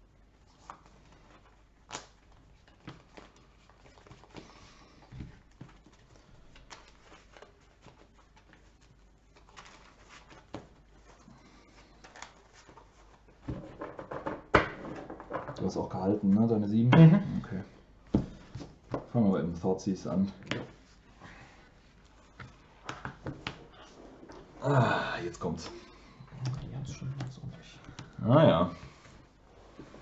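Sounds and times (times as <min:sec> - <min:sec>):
cards tapping on a table: 0:13.5 - 0:15.5, 0:22.4 - 0:23.7.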